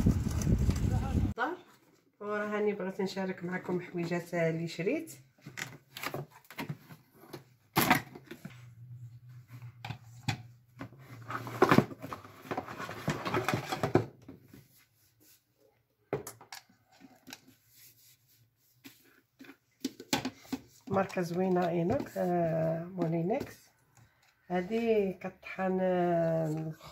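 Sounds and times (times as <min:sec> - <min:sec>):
plastic parts clicking and knocking: 0:19.4 - 0:22.2.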